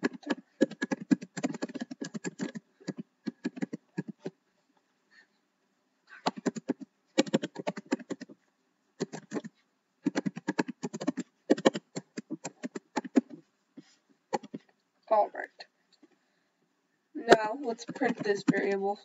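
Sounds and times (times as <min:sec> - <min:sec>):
computer keyboard typing: 0:00.0 - 0:04.3, 0:06.2 - 0:08.4, 0:09.0 - 0:13.3, 0:14.4 - 0:14.6, 0:17.4 - 0:18.8.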